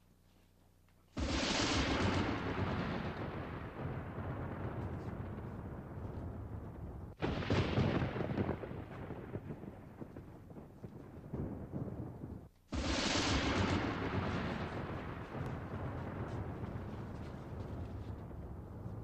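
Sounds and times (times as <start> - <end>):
loud rushing booms: 1.2 - 19.0.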